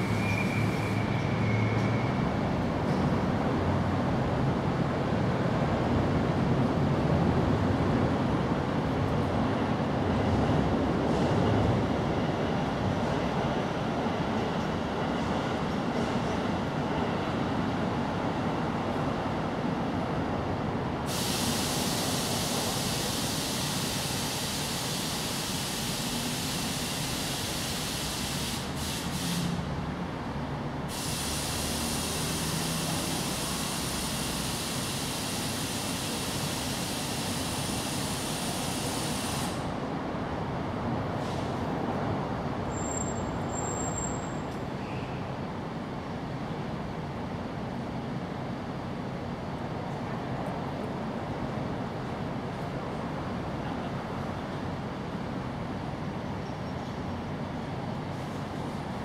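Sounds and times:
high hiss: 21.1s - 29.6s, 30.9s - 39.8s.

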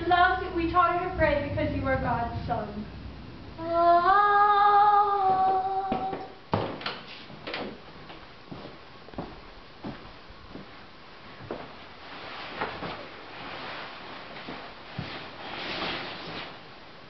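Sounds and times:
soft footsteps: 5.2s - 16.6s
bedding rustling: 7.1s - 17.0s.

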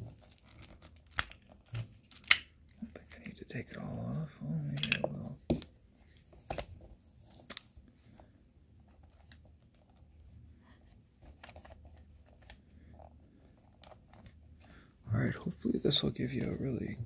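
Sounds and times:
plastic bricks clicking and snapping: 2.1s - 2.5s, 4.7s - 5.2s.

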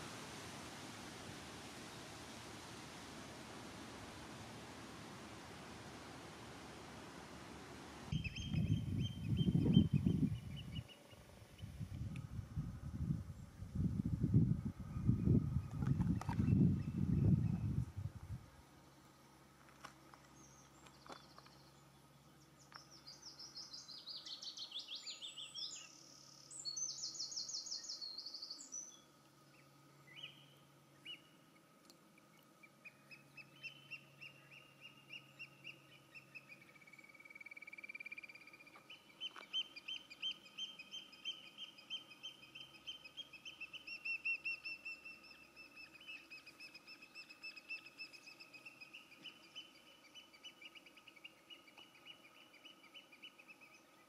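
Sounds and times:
birds calling with trills: 8.1s - 11.8s, 32.3s - 54.0s.

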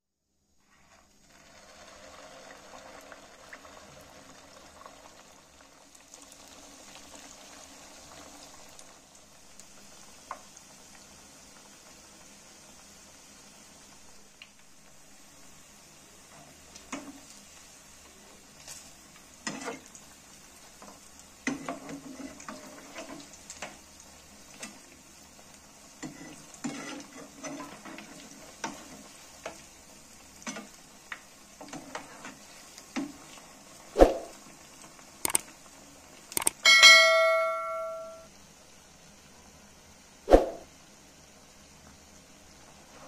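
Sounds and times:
patties sizzling in hot oil: 0.2s - 36.7s, 38.3s - 43.0s
metal spatula scraping a pan: 26.0s - 28.0s.

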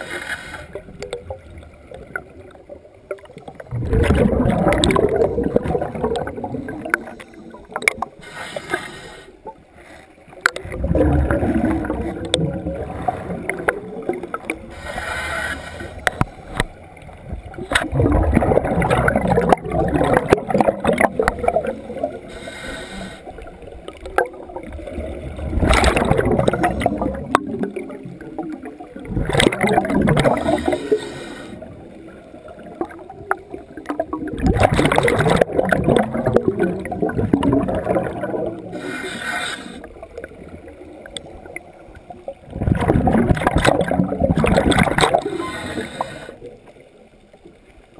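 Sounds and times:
gurgling exhaled bubbles: 0.7s - 8.2s, 10.4s - 47.1s
regulator inhalation hiss: 8.2s - 10.0s, 14.7s - 16.6s, 22.3s - 23.4s, 30.6s - 31.6s, 38.7s - 39.9s, 45.2s - 46.4s.

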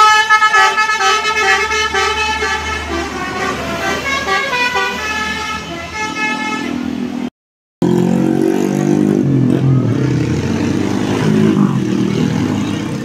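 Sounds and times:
musical air horn: 0.0s - 6.9s
bus diesel engine droning: 0.0s - 7.3s.

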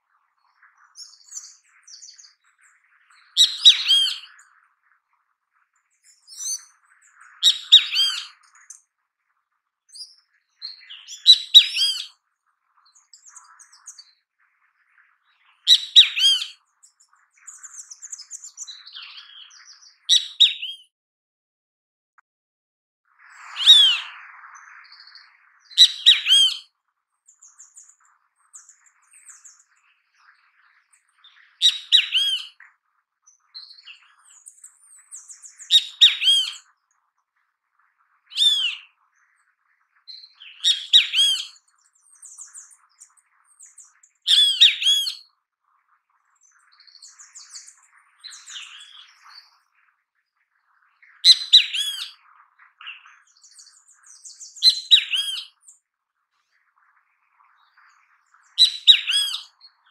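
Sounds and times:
soft bird chirps: 0.0s - 20.9s, 23.2s - 59.9s
bird calling loudly: 3.4s - 4.3s, 7.4s - 8.4s, 11.1s - 12.1s, 15.7s - 16.6s, 23.6s - 24.1s, 25.8s - 26.6s, 31.6s - 32.6s, 35.7s - 36.6s, 38.3s - 38.8s, 40.6s - 41.6s, 44.3s - 45.2s, 51.2s - 52.2s, 54.6s - 55.6s, 58.6s - 59.5s.

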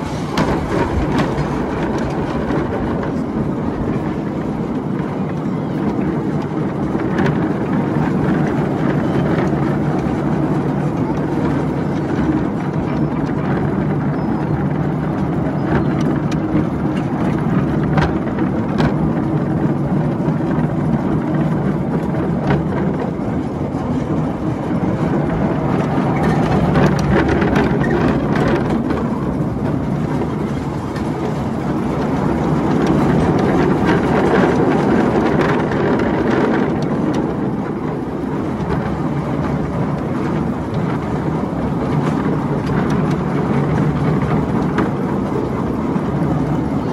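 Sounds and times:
miniature train running: 0.0s - 46.9s
wheels clicking on rails: 0.0s - 46.9s.

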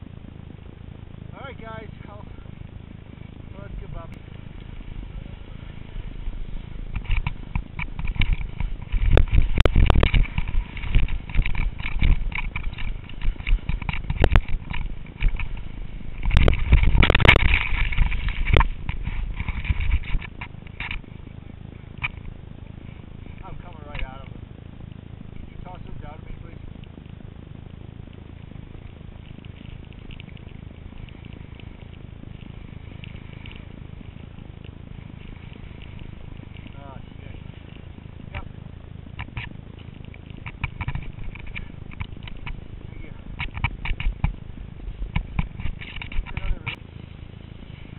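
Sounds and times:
faint crackles: 0.0s - 47.9s
skis scraping over snow: 0.0s - 47.9s
wind buffeting microphone: 0.0s - 47.9s.

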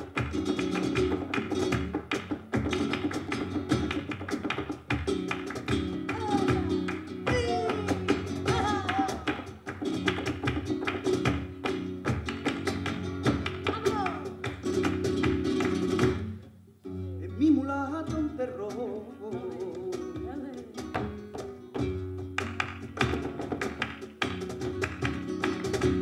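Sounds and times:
hand clapping: 0.0s - 16.2s, 22.3s - 26.0s
flamenco guitar: 0.0s - 26.0s
person singing: 6.1s - 9.4s, 13.7s - 14.4s, 17.1s - 20.9s.

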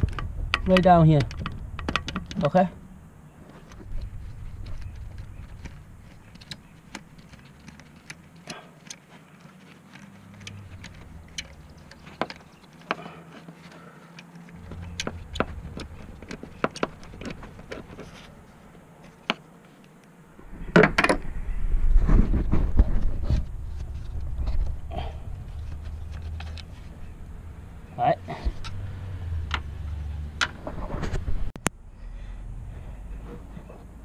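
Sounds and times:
low handling rumble: 0.0s - 8.4s, 20.3s - 34.0s
camera knocking and rubbing: 3.4s - 19.7s, 22.1s - 24.8s.

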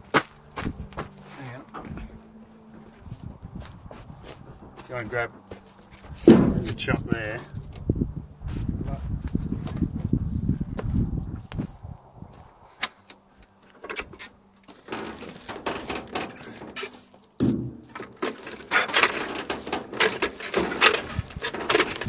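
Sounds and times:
heavy thump: 6.2s - 7.1s, 17.4s - 18.0s
hand winch clicking and clacking: 17.9s - 22.0s.

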